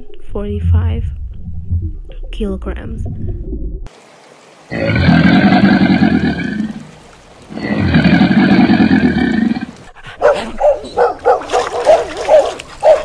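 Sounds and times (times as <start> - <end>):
crocodile growls: 4.7 - 6.9, 7.5 - 9.8
puppy barking and yipping: 10.2 - 13.0.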